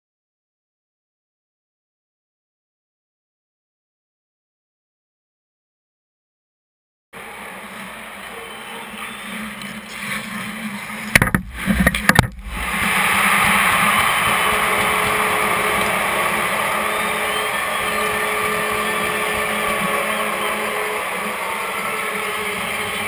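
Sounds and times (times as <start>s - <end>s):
arena noise: 7.2s - 23.0s
crowd cheering: 7.2s - 23.0s
hard knocks and clatter: 11.1s - 12.6s.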